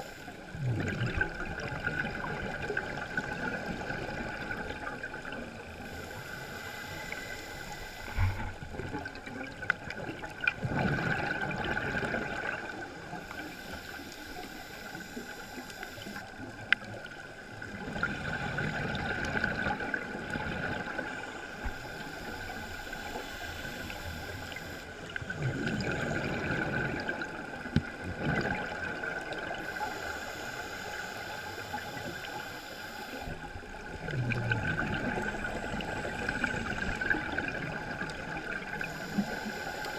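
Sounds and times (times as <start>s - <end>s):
regulator inhale hiss: 0.0s - 0.5s, 5.7s - 8.7s, 13.1s - 16.5s, 21.0s - 25.0s, 29.5s - 33.5s, 38.4s - 39.9s
rush of exhaled bubbles: 0.5s - 6.0s, 8.0s - 12.9s, 25.2s - 29.8s, 33.1s - 39.6s.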